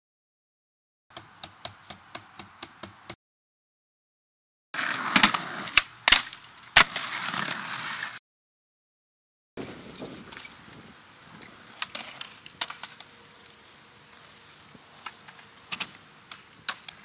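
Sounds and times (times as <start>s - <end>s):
skateboard clacking: 4.8s - 8.2s, 11.7s - 13.1s, 15.0s - 17.0s
skateboard wheels rolling with clicks: 4.8s - 8.2s, 9.6s - 13.6s, 14.8s - 17.0s.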